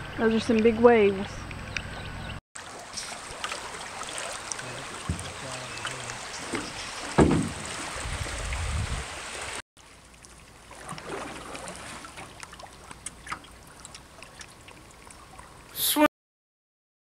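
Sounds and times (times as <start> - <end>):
river water rushing: 2.6 - 9.6
small water splashes: 2.6 - 15.8.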